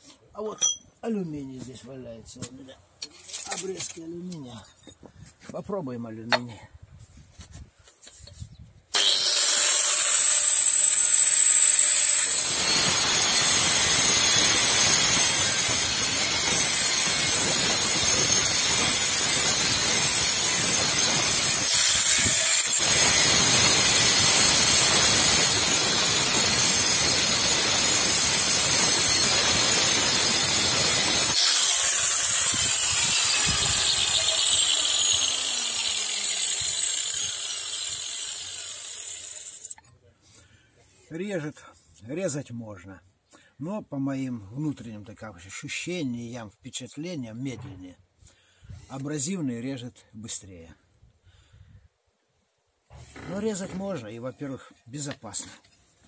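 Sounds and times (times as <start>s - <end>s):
angle grinder cutting metal: 9.0s - 39.8s.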